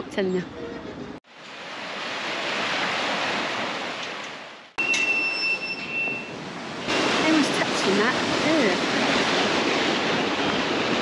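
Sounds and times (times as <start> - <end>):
river water rushing over weir: 6.6 - 11.0.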